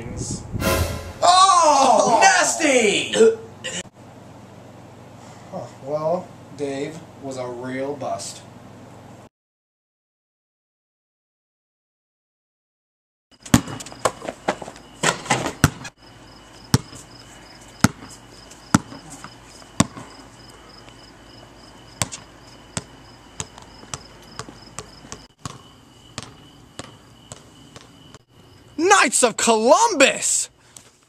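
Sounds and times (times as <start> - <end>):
basketball bouncing on hard court: 13.4 - 14.2, 15.1 - 15.9, 16.7 - 17.0, 17.8 - 18.1, 18.7 - 20.1, 22.0 - 27.9
crickets chirping: 13.4 - 31.0.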